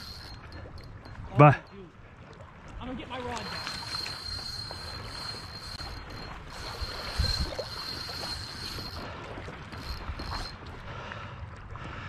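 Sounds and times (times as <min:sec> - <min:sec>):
river water flowing: 0:00.0 - 0:01.6, 0:02.9 - 0:11.0
wind buffeting microphone: 0:02.6 - 0:11.0
faint high whine: 0:03.4 - 0:09.1.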